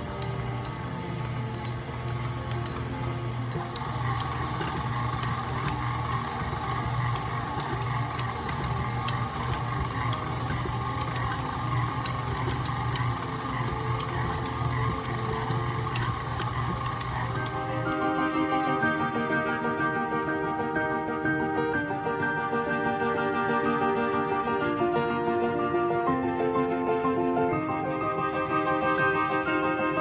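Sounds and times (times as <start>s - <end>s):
stand mixer motor hum: 0.0s - 18.2s.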